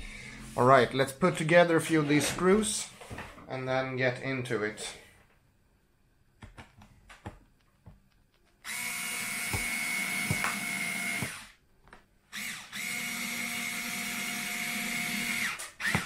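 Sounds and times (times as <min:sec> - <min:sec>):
electric screwdriver running: 0:08.6 - 0:11.6, 0:12.3 - 0:16.0.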